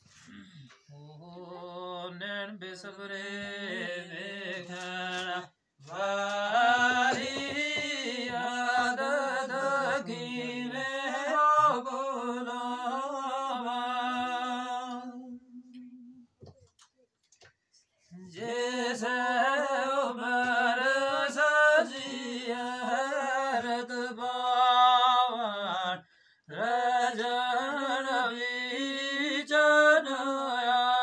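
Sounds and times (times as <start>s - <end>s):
man chanting unaccompanied: 1.0s - 15.1s.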